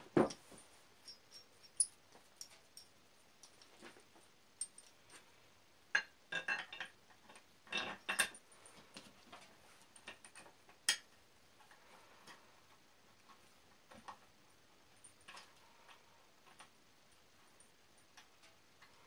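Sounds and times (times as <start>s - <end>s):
metal fasteners clinking on metal: 0.2s - 3.8s, 4.6s - 5.2s.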